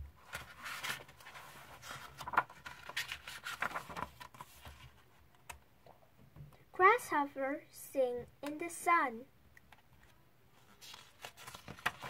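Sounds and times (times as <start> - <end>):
book pages turning: 0.2 - 5.6, 9.8 - 12.0.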